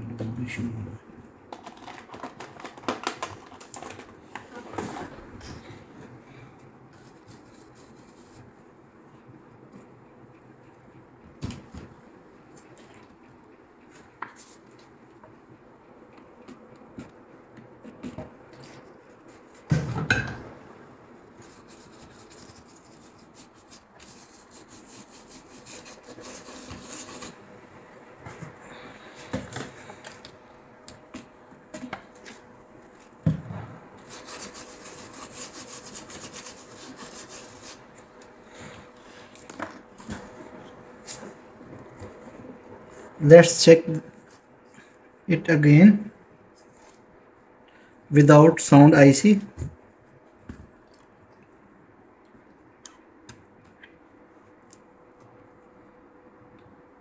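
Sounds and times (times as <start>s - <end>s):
rubbing and scraping handling: 21.3s - 27.4s, 34.0s - 39.5s.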